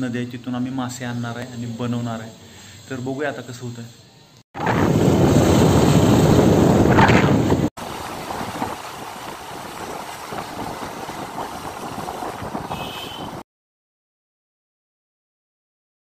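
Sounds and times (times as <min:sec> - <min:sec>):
motorbike riding noise: 0:04.6 - 0:13.4
wind buffeting microphone: 0:04.6 - 0:13.4.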